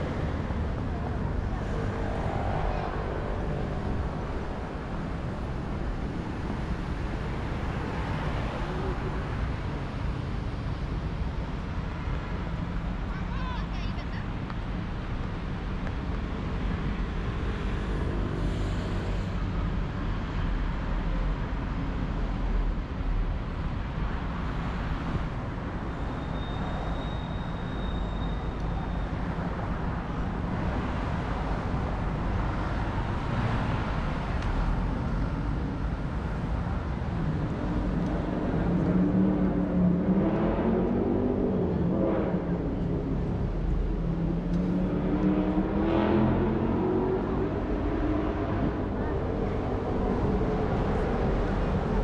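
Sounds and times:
cars and buses passing: 0:00.0 - 0:52.0
vehicle engine accelerating: 0:37.6 - 0:51.9.

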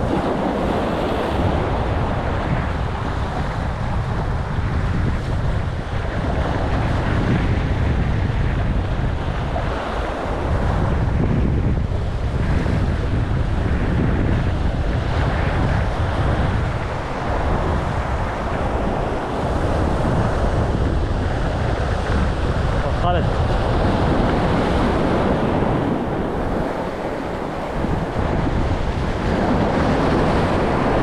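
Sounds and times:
waves breaking on breakwater: 0:00.0 - 0:31.0
wind buffeting microphone: 0:00.0 - 0:31.0.

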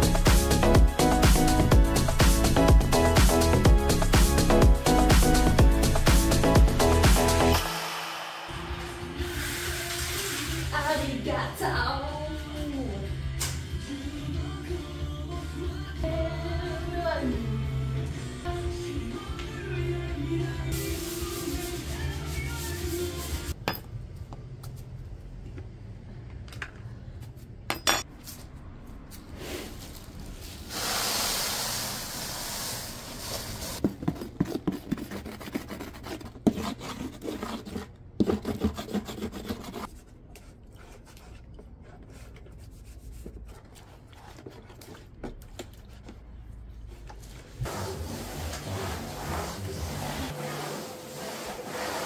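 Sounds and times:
hiss: 0:07.7 - 0:10.7, 0:30.6 - 0:33.8
rubbing and scraping: 0:32.9 - 0:52.0.

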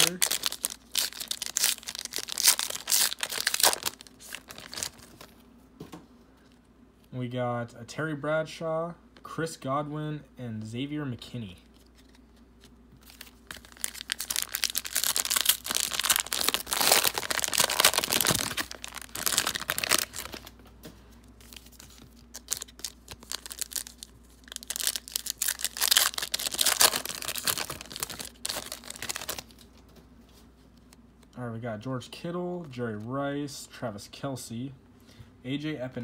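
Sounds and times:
cellophane wrapper crinkling and tearing: 0:00.0 - 0:05.3, 0:11.7 - 0:20.6, 0:21.3 - 0:29.8.

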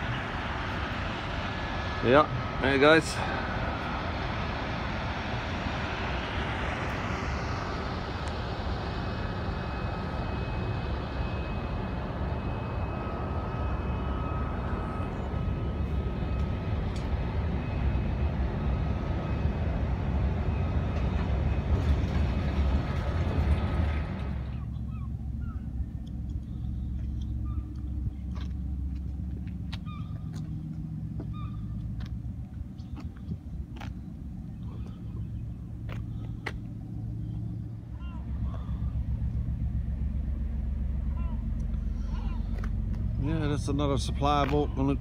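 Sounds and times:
faint high whine: 0:00.0 - 0:22.0
ship engines rumbling: 0:00.0 - 0:45.0.

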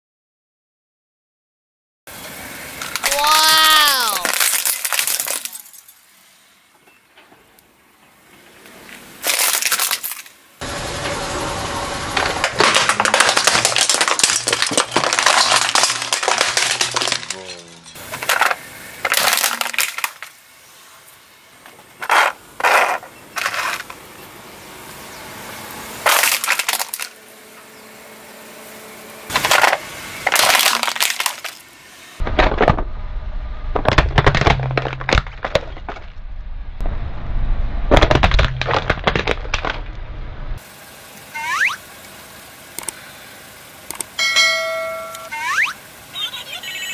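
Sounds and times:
plastic toys cracking under tyre: 0:02.8 - 0:05.7, 0:09.2 - 0:10.4, 0:12.2 - 0:17.5, 0:18.1 - 0:20.4, 0:26.0 - 0:27.2, 0:29.3 - 0:31.6, 0:37.9 - 0:39.8.

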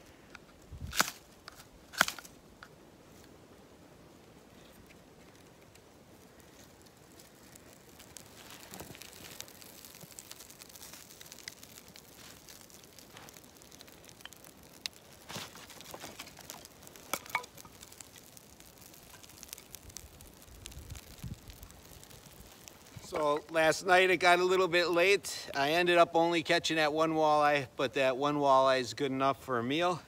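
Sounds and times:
kindling fire crackling: 0:00.0 - 0:30.0.

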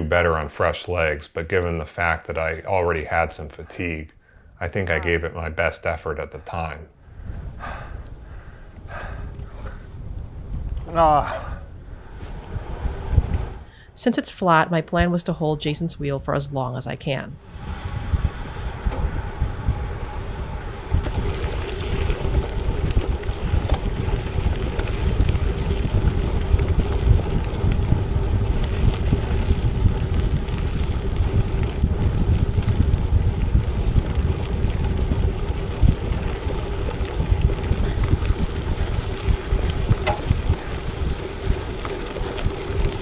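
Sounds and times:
bike rolling hum: 0:07.0 - 0:14.4, 0:17.4 - 0:43.0
wind buffeting microphone: 0:07.0 - 0:15.1, 0:17.3 - 0:43.0.

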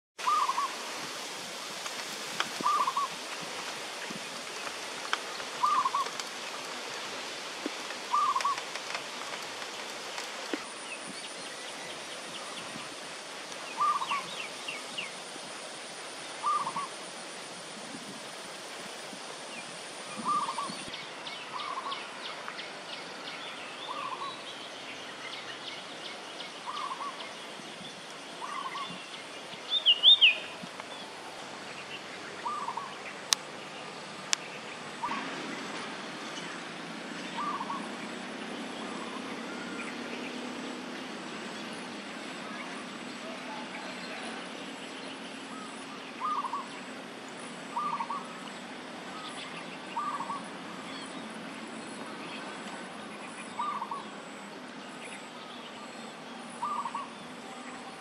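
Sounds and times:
small birds chirping: 0:00.2 - 0:00.9, 0:02.0 - 0:15.3, 0:19.6 - 0:58.0
bird low call: 0:00.2 - 0:01.0, 0:02.6 - 0:03.2, 0:05.3 - 0:06.2, 0:08.0 - 0:08.8, 0:13.6 - 0:15.2, 0:16.4 - 0:17.0, 0:19.6 - 0:22.6, 0:25.4 - 0:35.4, 0:37.2 - 0:40.4, 0:42.4 - 0:46.9, 0:47.7 - 0:48.5, 0:49.1 - 0:51.2, 0:51.9 - 0:54.3, 0:55.0 - 0:58.0
high insect-like whine: 0:00.2 - 0:58.0.

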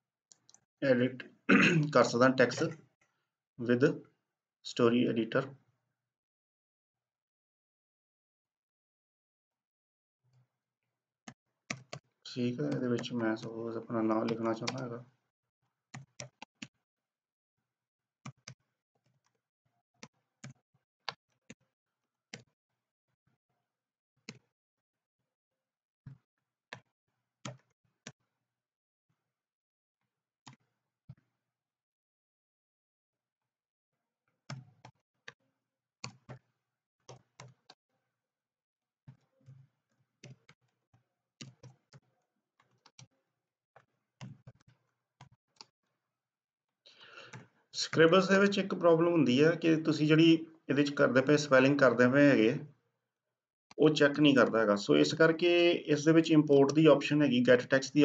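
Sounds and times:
typing on computer keyboard: 0:12.6 - 0:13.5, 0:14.2 - 0:14.9.

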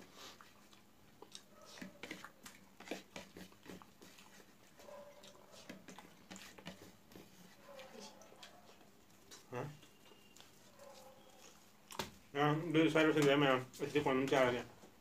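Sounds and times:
chewing: 0:00.0 - 0:12.3
fingers mixing rice on plate: 0:00.3 - 0:12.1.

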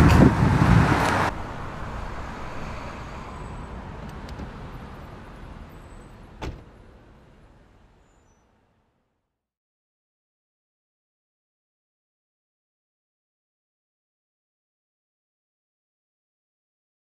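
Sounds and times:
street background noise: 0:00.0 - 0:09.2
car door shutting: 0:03.9 - 0:04.7, 0:06.4 - 0:06.8.

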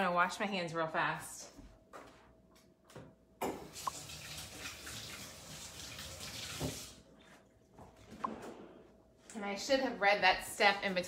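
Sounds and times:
faucet running: 0:03.5 - 0:07.0.

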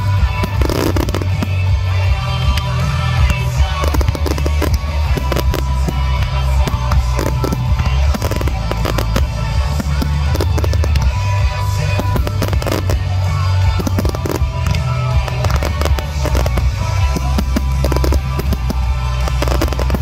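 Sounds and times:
loud music with heavy bass: 0:00.0 - 0:20.0
firework shells bursting: 0:02.6 - 0:20.0.

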